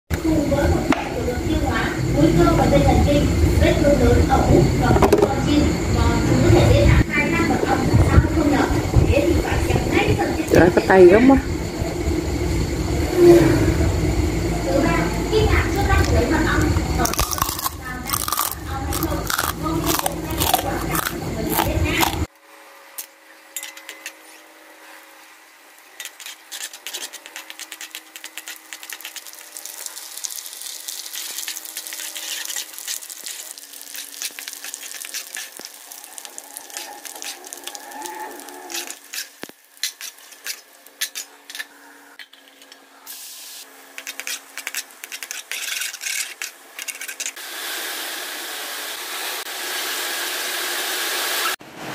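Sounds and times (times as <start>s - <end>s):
hot oil sizzling in a wok: 26.0s - 41.3s, 43.1s - 51.6s
wire strainer stirring oil: 26.0s - 41.7s, 44.0s - 47.4s.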